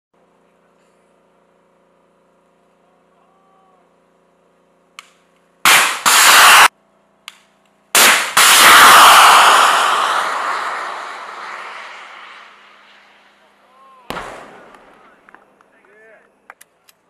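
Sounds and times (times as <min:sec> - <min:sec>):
missile launch blast: 0:05.7 - 0:06.7, 0:08.0 - 0:13.4, 0:14.1 - 0:15.3
rushing noise burst: 0:08.0 - 0:13.5.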